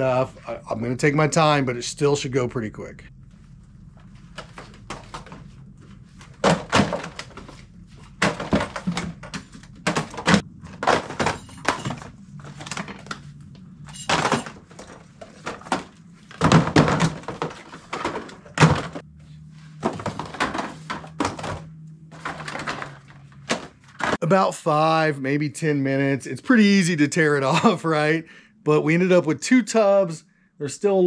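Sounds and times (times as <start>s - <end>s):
merchandise thunks and knocks: 4.3s - 13.2s, 13.9s - 19.2s, 19.8s - 24.2s.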